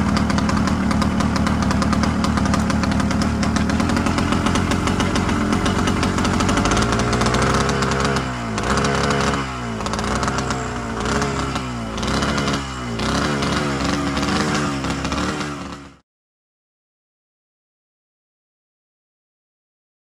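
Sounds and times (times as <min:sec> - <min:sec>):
ultralight engine running: 0:00.0 - 0:15.9.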